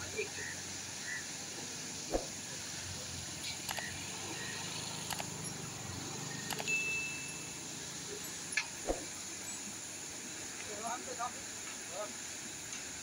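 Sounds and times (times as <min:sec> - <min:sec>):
light clicks: 0:05.1 - 0:05.3.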